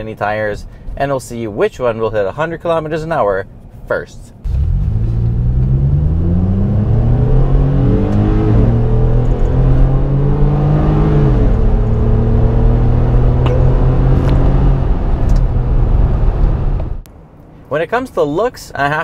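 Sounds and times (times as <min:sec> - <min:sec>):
truck engine accelerating: 0:04.4 - 0:17.1.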